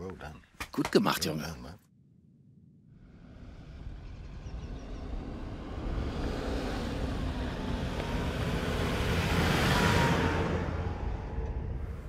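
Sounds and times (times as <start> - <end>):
vehicle engine approaching: 2.9 - 12.0
tyres on dirt road: 3.0 - 12.0.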